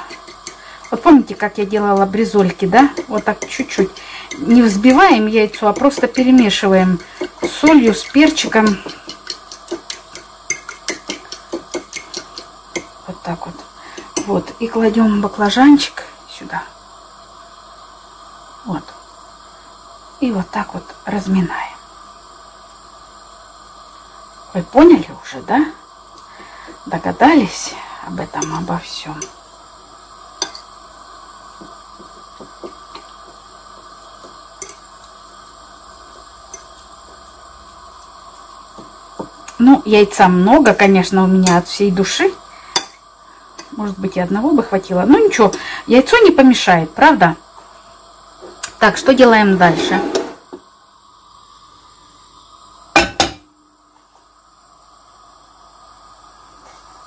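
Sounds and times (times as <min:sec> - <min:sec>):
fork clicking on plate: 0:00.0 - 0:13.0, 0:14.0 - 0:14.3, 0:30.4 - 0:30.6, 0:34.6 - 0:34.8, 0:42.7 - 0:43.0
fork stirring food: 0:00.0 - 0:14.6, 0:28.3 - 0:29.4, 0:30.4 - 0:30.7, 0:31.6 - 0:33.4, 0:34.2 - 0:34.8, 0:36.4 - 0:37.2, 0:41.4 - 0:41.8, 0:42.7 - 0:43.0, 0:43.6 - 0:43.9
gas burner hissing: 0:00.0 - 0:57.0
frying pan clanking on metal grate: 0:05.8 - 0:12.9.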